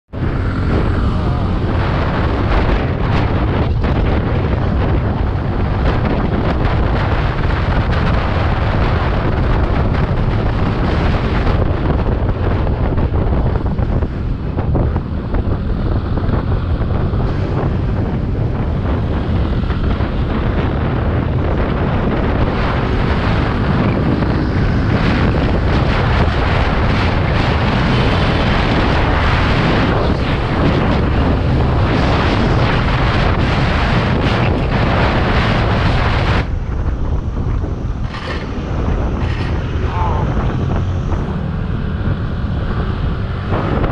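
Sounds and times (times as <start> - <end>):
scooter engine: 0.1 - 3.0
road noise: 0.1 - 43.9
wind buffeting microphone: 0.1 - 43.9.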